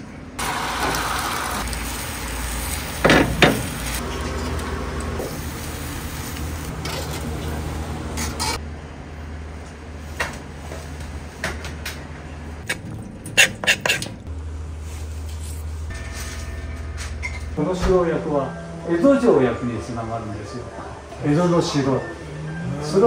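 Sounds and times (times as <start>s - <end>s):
low hum: 14.0s - 23.0s.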